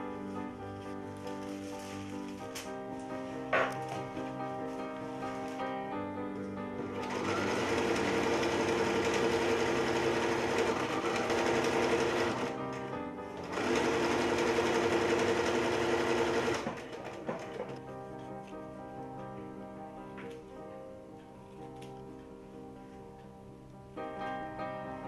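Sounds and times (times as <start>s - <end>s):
sewing machine stitching: 6.9s - 12.6s, 13.4s - 17.7s.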